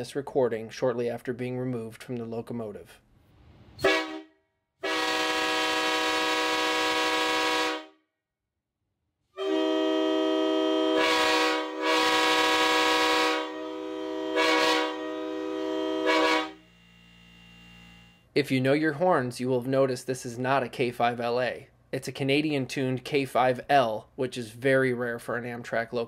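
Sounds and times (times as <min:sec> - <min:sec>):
train horn blasts: 0:03.8 - 0:08.0, 0:09.4 - 0:16.7.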